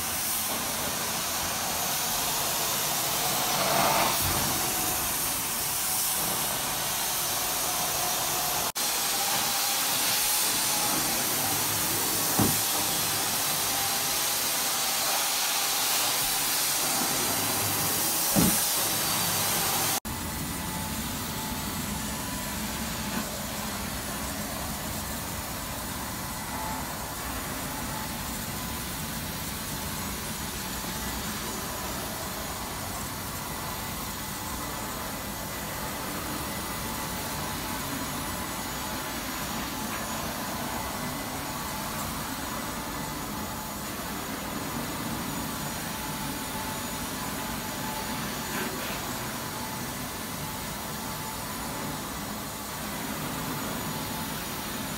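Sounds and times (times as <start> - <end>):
carpet extraction cleaner suction: 0.0 - 54.9
powered cleaning head on carpet: 8.8 - 14.2, 14.9 - 20.0.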